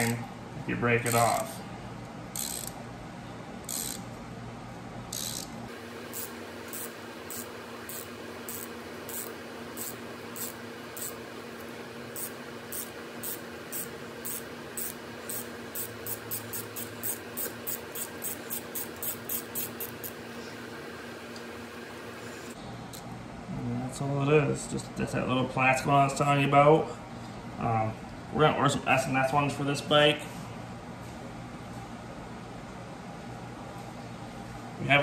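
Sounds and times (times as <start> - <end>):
hand ratchet clicking: 1.0 - 1.4, 2.3 - 2.8, 3.7 - 4.0, 5.1 - 5.5, 12.2 - 20.1.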